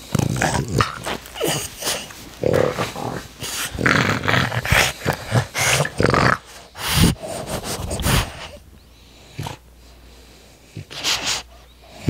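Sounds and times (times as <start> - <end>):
puppy breathing and sniffing: 0.0 - 12.0.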